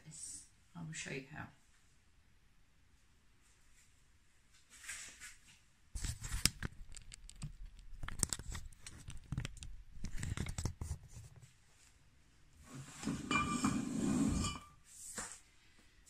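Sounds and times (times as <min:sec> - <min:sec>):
camera handling rustle: 0:06.0 - 0:11.4
rubbing and knocking on microphone: 0:06.0 - 0:11.6.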